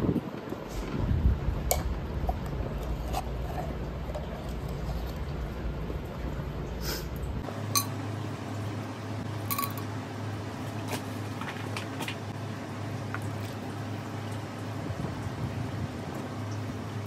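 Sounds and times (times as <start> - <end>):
steady low hum: 0.0 - 17.0
metal spoon clinking on glass: 9.5 - 9.8.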